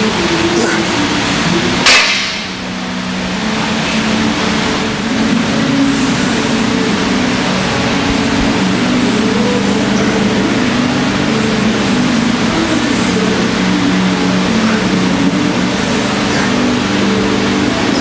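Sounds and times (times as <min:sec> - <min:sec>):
steady background drone: 0:00.0 - 0:18.0.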